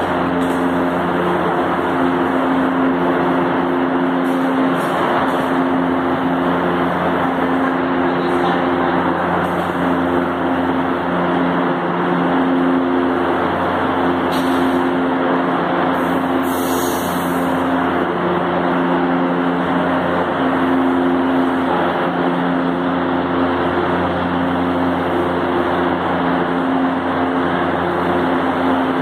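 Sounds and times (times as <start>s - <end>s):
train equipment humming: 0.0s - 29.0s
air hiss: 16.0s - 17.6s.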